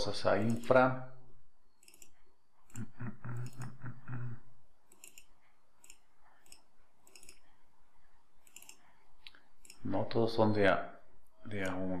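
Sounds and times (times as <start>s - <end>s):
computer mouse clicking: 0.4s - 0.7s, 1.8s - 2.8s, 4.9s - 7.5s, 8.4s - 9.9s
man murmuring: 2.8s - 4.5s.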